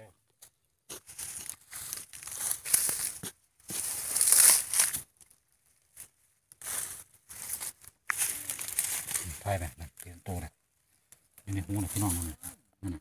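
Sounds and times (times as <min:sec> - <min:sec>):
hand tool scraping dry soil: 0:00.9 - 0:05.1.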